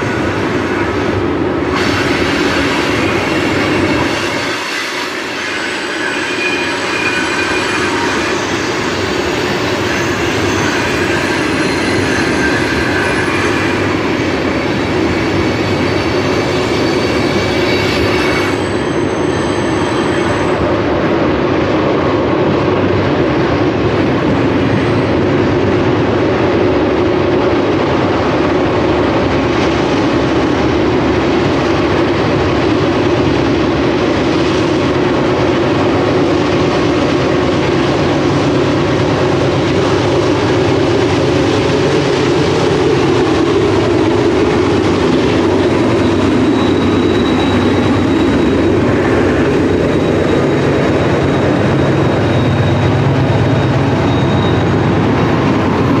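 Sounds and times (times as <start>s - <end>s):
diesel locomotives working hard: 0.0s - 56.0s
thin high whine: 40.3s - 56.0s.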